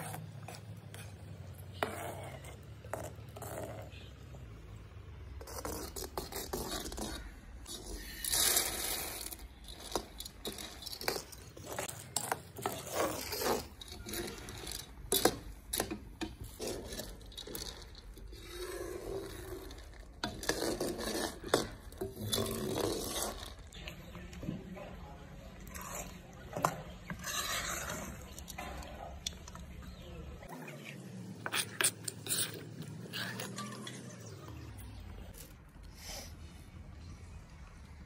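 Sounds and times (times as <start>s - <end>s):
metal ladle scraping pan: 25.7s - 28.8s.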